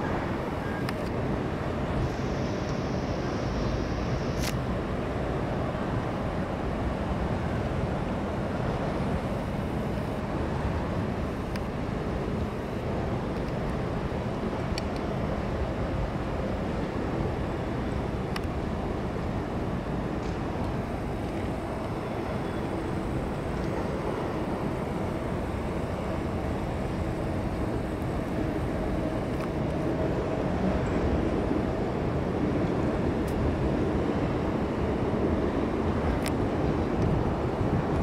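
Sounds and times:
low rumble of city ambience: 0.0 - 38.0.

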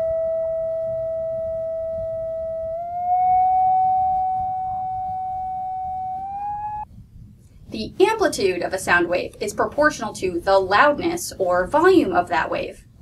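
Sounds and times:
electronic test tone: 0.0 - 6.8.

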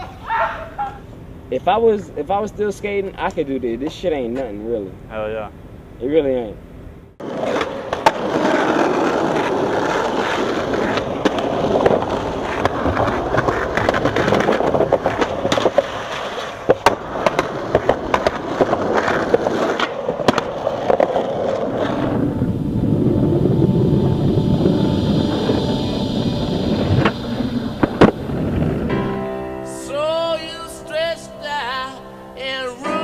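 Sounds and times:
skateboard clacks and knocks: 7.2 - 22.3
skateboard wheels rolling on pavement: 7.2 - 33.0.

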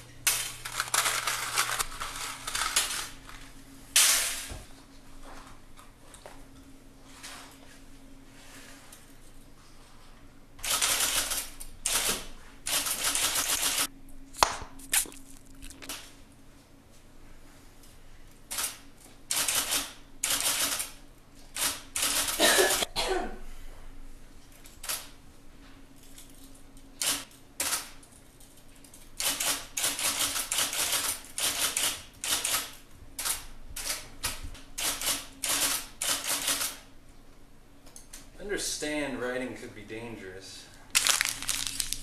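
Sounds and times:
typewriter keys clacking: 12.7 - 13.9.

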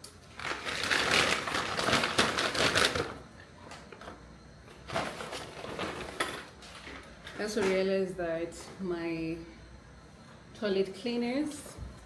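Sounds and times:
shopping bag rustling and crinkling: 0.3 - 3.2.

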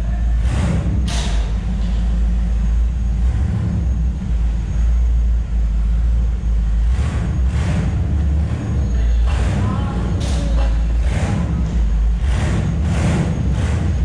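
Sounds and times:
vehicle engine rumbling: 0.0 - 14.0.

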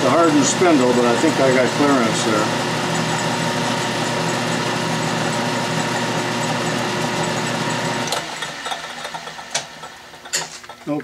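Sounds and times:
metal lathe humming: 0.0 - 11.0.

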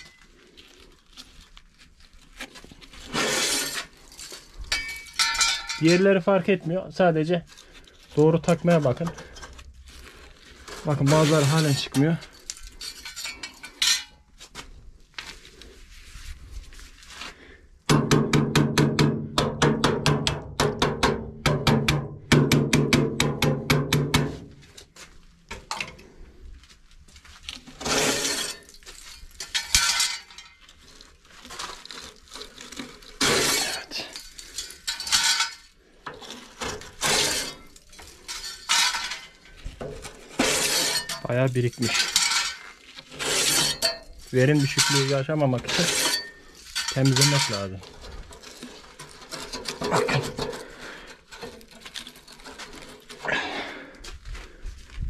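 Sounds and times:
metal scraping and clinking: 0.0 - 0.4, 2.9 - 14.4, 27.6 - 53.3.

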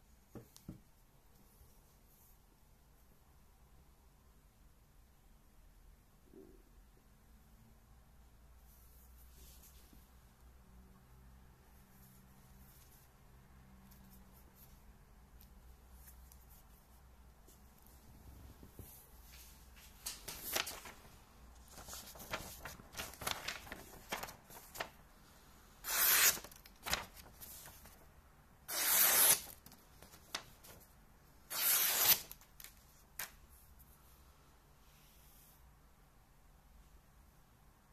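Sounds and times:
paper rustling: 17.5 - 25.1, 25.8 - 28.1, 28.7 - 33.4
knife slicing paper: 25.8 - 27.9, 28.7 - 29.6, 31.5 - 32.4.

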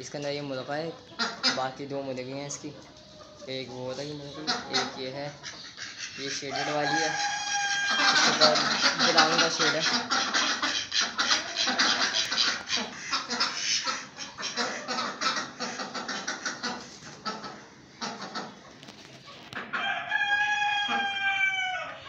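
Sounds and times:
chickens clucking: 0.0 - 22.0
rooster crowing: 6.5 - 8.6, 19.8 - 22.0.

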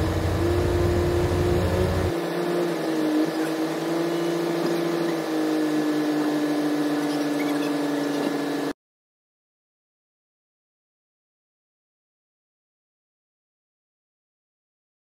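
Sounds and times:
diesel tractor engines idling: 0.0 - 2.1.

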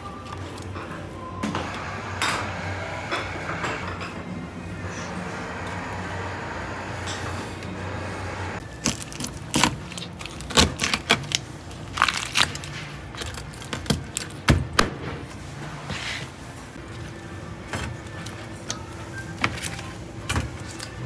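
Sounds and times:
utensils and dishes clinking: 0.0 - 5.6, 7.0 - 7.8
steady hum: 0.0 - 8.9.

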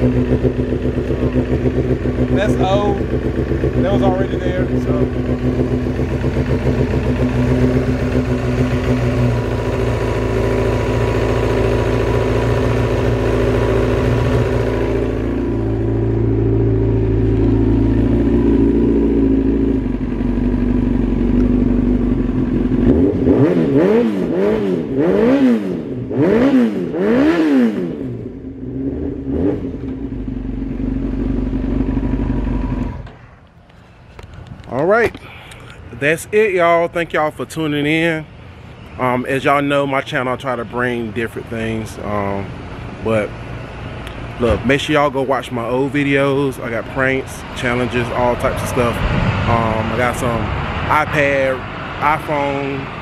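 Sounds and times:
motorcycle engine idling: 0.0 - 23.1, 28.2 - 35.8
motorcycle engine revving: 0.0 - 33.2, 40.2 - 53.0.

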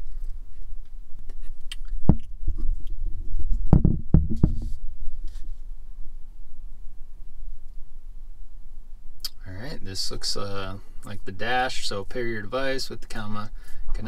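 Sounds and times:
steady low rumble: 0.0 - 14.0
dull handling knocks: 3.7 - 4.7.

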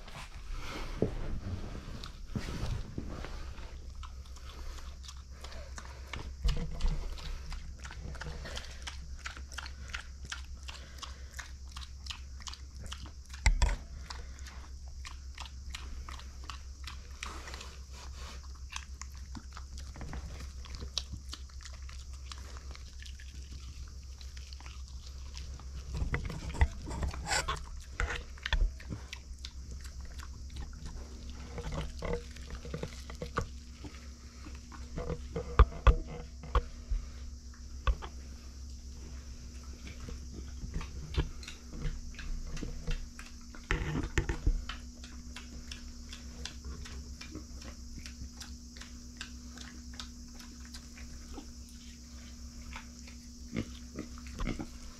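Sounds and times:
pig chewing and crunching corn: 0.0 - 54.9.

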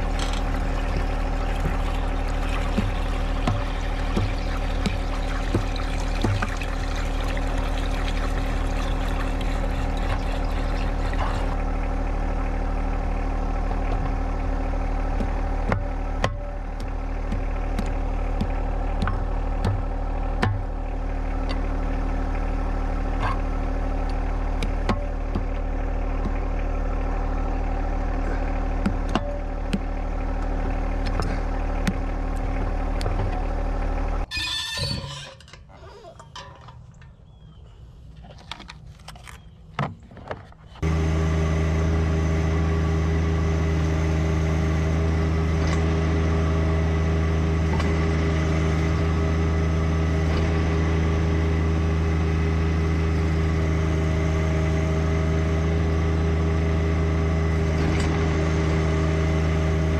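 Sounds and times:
tractor diesel engine running: 0.0 - 59.9
sharp clicks and knocks: 28.8 - 33.5.

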